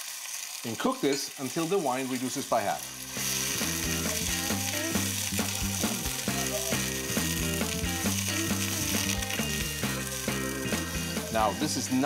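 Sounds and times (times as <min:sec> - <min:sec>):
food sizzling in frying pan: 0:00.0 - 0:12.0
music with plucked beat: 0:03.2 - 0:12.0.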